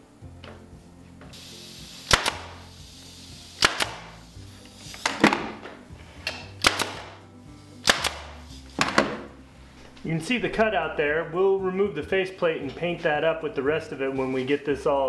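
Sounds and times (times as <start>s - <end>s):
background music: 0.0s - 15.0s
power stapler shots into wood: 2.0s - 2.6s, 3.6s - 4.2s, 4.9s - 5.6s, 6.3s - 7.2s, 7.8s - 9.3s.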